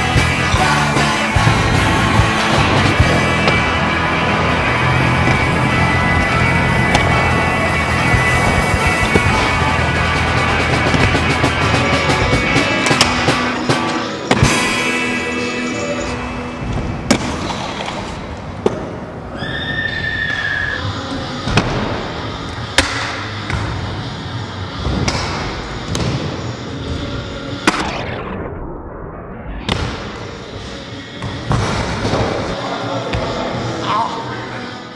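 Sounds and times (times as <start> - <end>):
high squeal: 19.3 - 21.4.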